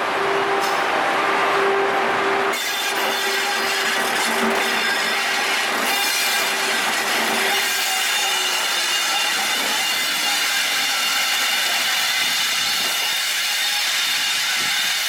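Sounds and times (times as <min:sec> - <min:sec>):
locomotive running equipment: 0:00.0 - 0:15.0
steel wheels on rail: 0:00.0 - 0:15.0.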